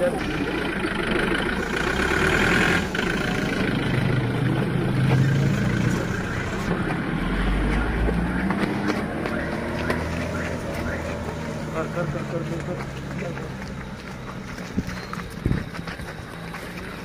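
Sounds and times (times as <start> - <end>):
van engine idling: 0.0 - 6.7.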